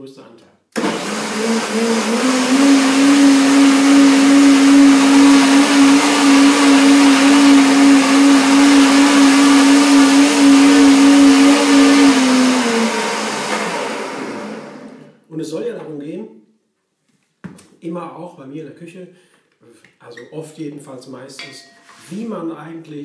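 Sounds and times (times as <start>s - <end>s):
blender motor running: 0.8s - 15.1s.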